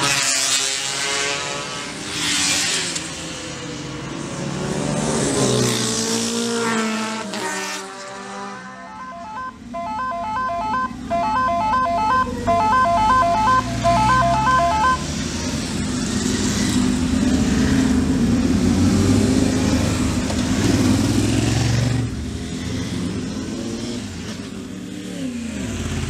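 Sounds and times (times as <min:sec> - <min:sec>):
motorcycles idling and revving: 0:00.0 - 0:26.0
electronic beeping tones: 0:08.8 - 0:15.1.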